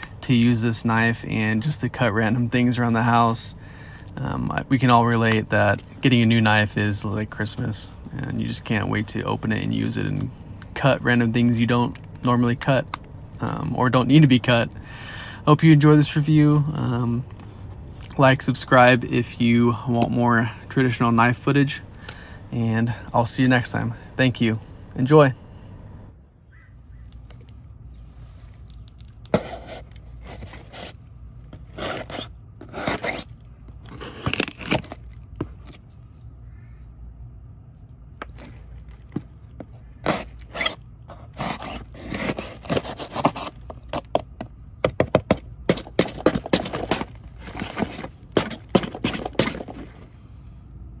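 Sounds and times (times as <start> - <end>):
knife cutting cardboard: 29.3 - 31.0, 31.6 - 33.3, 33.9 - 35.8, 40.0 - 44.3, 45.0 - 50.0.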